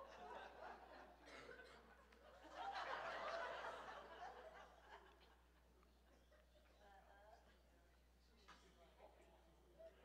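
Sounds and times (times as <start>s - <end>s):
faint group laughter: 0.0s - 5.4s.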